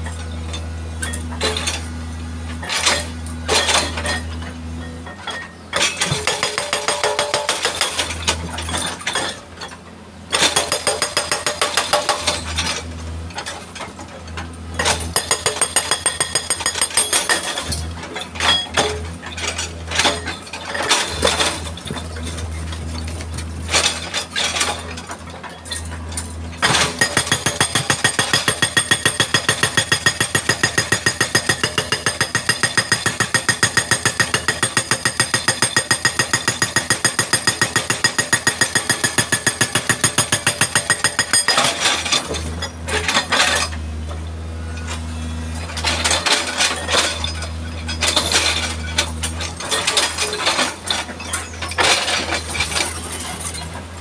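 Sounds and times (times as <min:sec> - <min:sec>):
hydraulic rock breaker hammering: 0:05.7 - 0:08.9, 0:10.3 - 0:12.7, 0:14.8 - 0:43.8.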